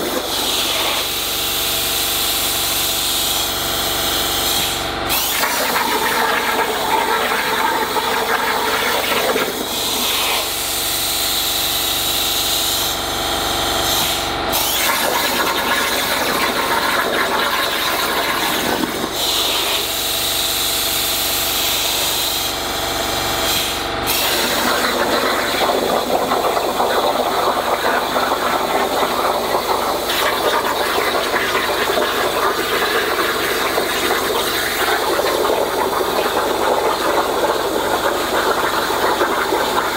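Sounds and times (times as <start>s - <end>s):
plasma torch cutting steel hiss: 0.0s - 1.1s, 17.7s - 20.2s.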